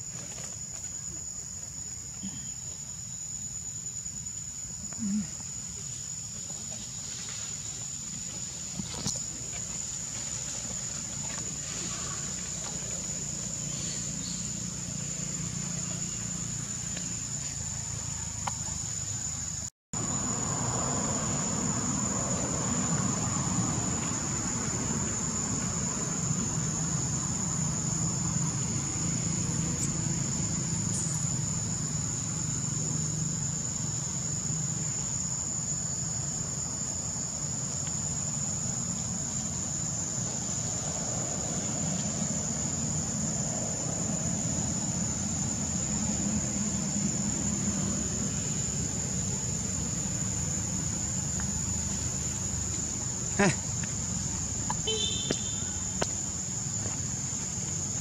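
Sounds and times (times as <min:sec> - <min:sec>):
high-pitched insect drone: 0:11.5 - 0:58.0.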